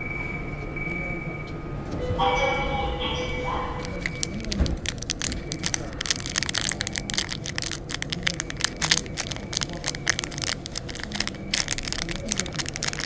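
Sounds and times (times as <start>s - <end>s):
plastic bag crinkling: 3.8s - 13.0s
small pieces shifting in bag: 3.9s - 13.0s.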